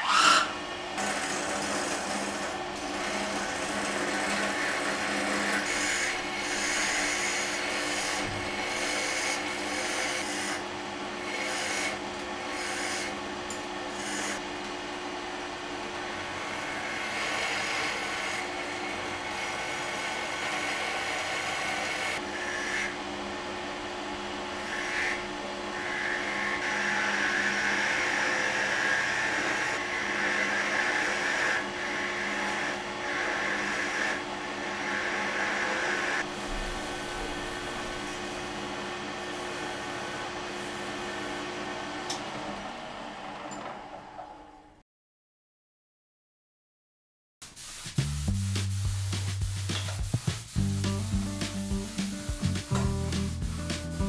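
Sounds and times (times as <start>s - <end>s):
turning tool scraping wood: 0.0s - 10.6s, 11.2s - 13.2s, 13.9s - 14.4s, 16.4s - 22.9s, 47.4s - 54.0s
wood lathe humming: 0.0s - 43.4s.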